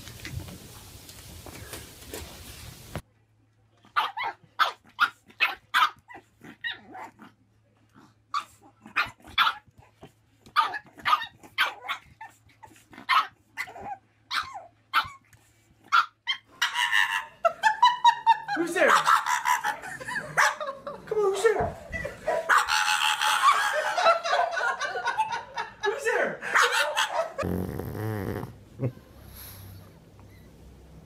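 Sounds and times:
dog barking: 4.0s - 6.0s, 8.4s - 9.6s, 20.4s - 20.7s, 22.2s - 23.7s, 26.5s - 27.4s.

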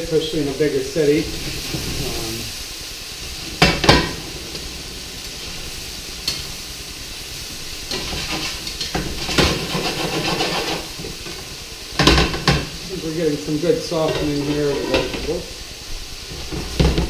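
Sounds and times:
vegetables sizzling in oil: 0.0s - 17.0s
pan and utensil clatter: 3.2s - 6.8s, 7.6s - 15.5s, 16.3s - 17.0s
sharp knocks on pan: 12.0s - 12.7s.

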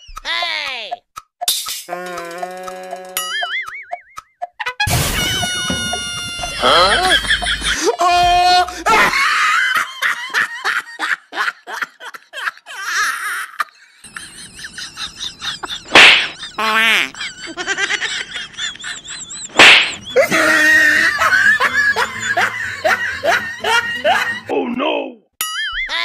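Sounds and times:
men laughing hard: 4.9s - 24.5s
sharp smack-like hits: 15.9s - 16.4s, 19.5s - 20.0s.

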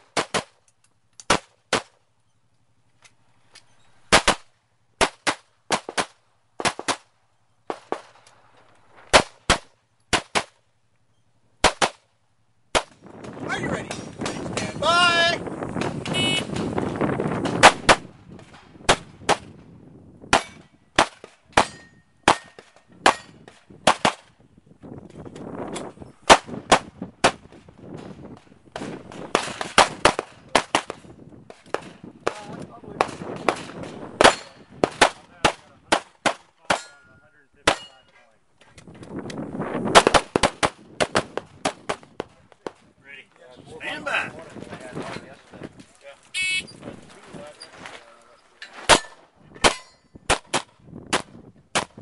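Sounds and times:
pistol shots: 1.2s - 2.0s, 4.1s - 7.1s, 9.1s - 10.6s, 11.6s - 12.1s, 12.7s - 13.0s, 17.4s - 19.6s, 20.3s - 24.3s, 26.2s - 27.5s, 28.7s - 31.1s, 31.7s - 37.0s, 37.6s - 38.0s, 39.9s - 42.8s, 48.9s - 52.0s.

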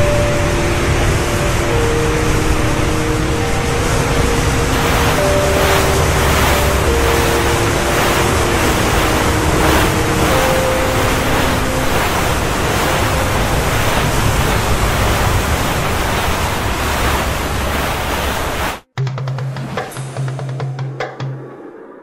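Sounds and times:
breaking sea waves: 0.0s - 18.9s
rush of wind: 0.0s - 18.9s.

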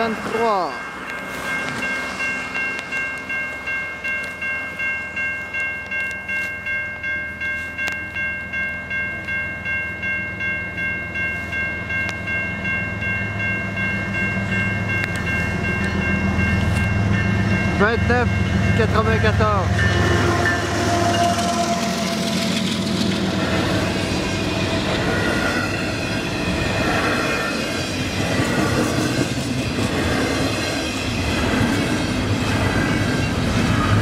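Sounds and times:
level crossing bell ringing: 0.0s - 21.3s
freight locomotive rumble: 0.0s - 34.0s.

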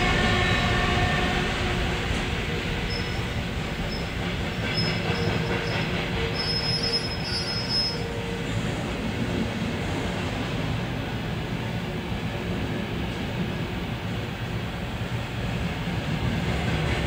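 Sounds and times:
train wheels rumbling on track: 0.0s - 17.0s
high-pitched wheel squeals: 4.7s - 8.2s.

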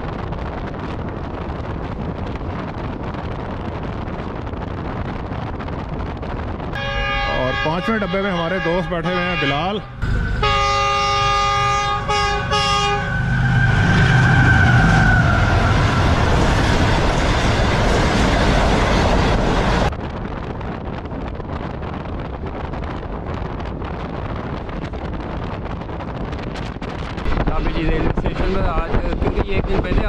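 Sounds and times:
train running at speed: 0.0s - 30.0s
train horn blasts: 6.8s - 16.0s.

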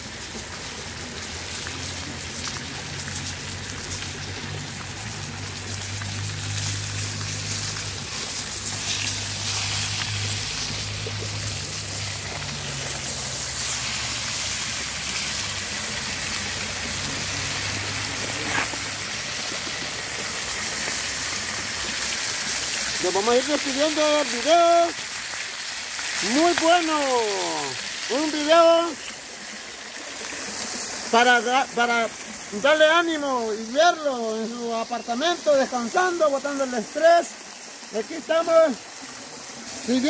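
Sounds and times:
fish sizzling in hot oil: 0.0s - 40.0s
sharp crackles: 2.4s - 21.4s.

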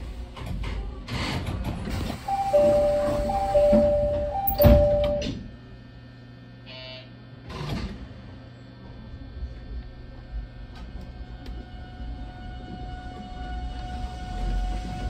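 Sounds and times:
train doors thumping shut: 2.3s - 5.4s
two-tone door chime: 2.3s - 5.4s.

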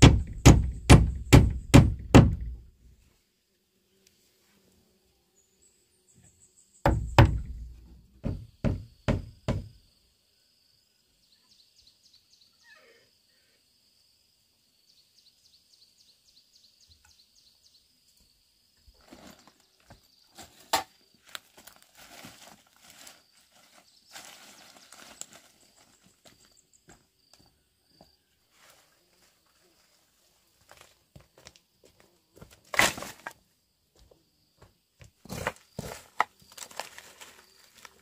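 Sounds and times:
axe blows on wooden door: 0.0s - 2.7s, 6.9s - 9.8s
insects chirping: 0.0s - 38.0s.

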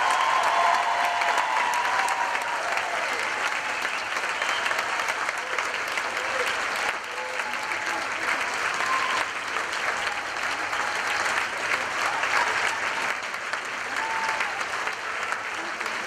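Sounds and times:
audience applauding: 0.0s - 16.0s.

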